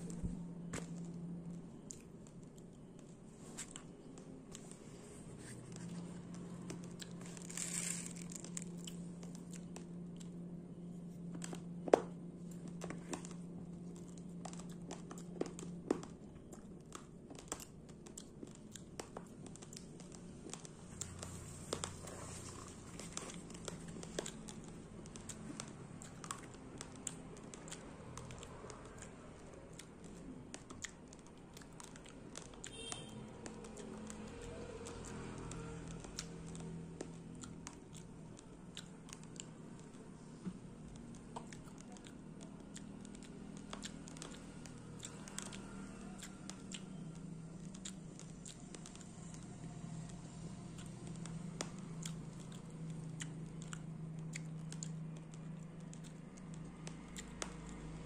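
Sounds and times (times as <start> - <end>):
faint low hum: 0.0 - 58.0
rice grains crunched by teeth: 7.0 - 9.3.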